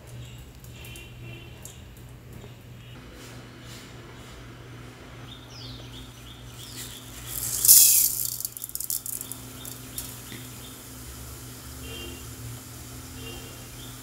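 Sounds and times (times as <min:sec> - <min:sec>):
seeds sizzling in hot oil: 0:06.4 - 0:14.0
crackling pops of seeds: 0:06.9 - 0:10.5.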